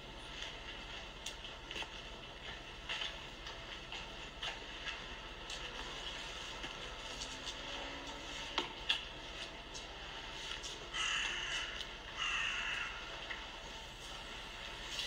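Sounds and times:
crow cawing: 10.9s - 13.2s.

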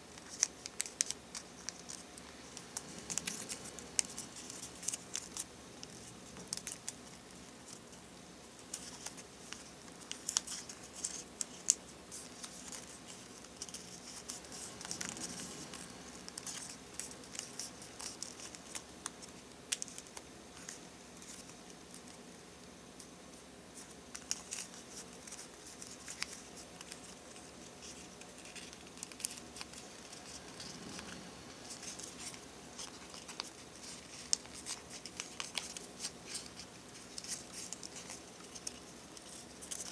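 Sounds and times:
paper rustling and crinkling: 0.0s - 7.9s, 8.6s - 22.2s, 23.8s - 39.9s
paper ticking as it flexes: 0.1s - 7.8s.

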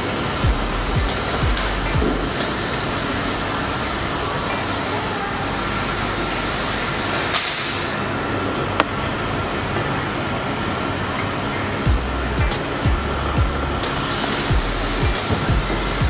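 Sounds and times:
toy quadcopter propellers whirring: 0.0s - 8.4s, 13.8s - 16.0s.

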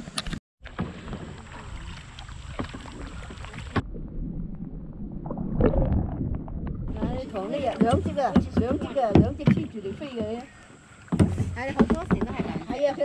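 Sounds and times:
river water splashing: 0.6s - 3.9s
muffled underwater rumble: 0.9s - 7.7s
underwater clicks and knocks: 5.6s - 13.0s.

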